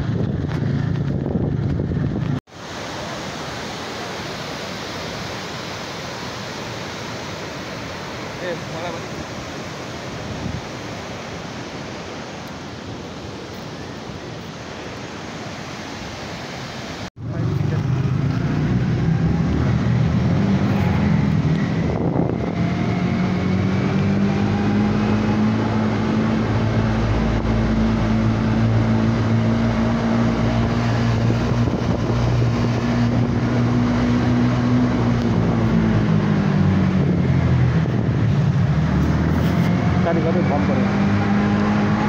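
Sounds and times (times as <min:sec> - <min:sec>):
motorcycle engine cruising: 0:00.0 - 0:02.4, 0:17.2 - 0:42.0
wind noise on microphone: 0:00.0 - 0:02.5, 0:10.1 - 0:11.6, 0:17.2 - 0:42.0.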